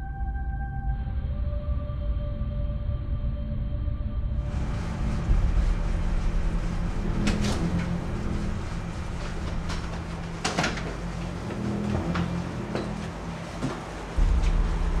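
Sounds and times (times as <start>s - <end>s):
low rumble: 0.0s - 15.0s.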